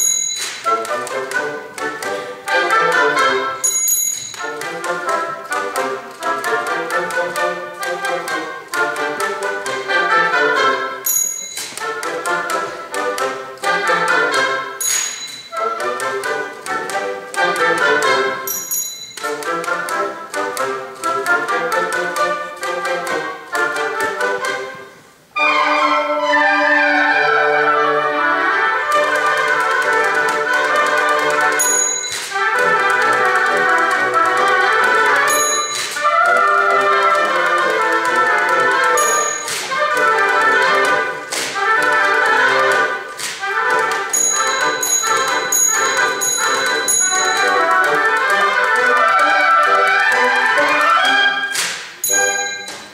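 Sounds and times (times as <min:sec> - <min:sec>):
oboe and bassoon band playing: 0:00.0 - 0:18.6, 0:19.2 - 0:52.9
typewriter keys clacking: 0:51.6 - 0:52.9.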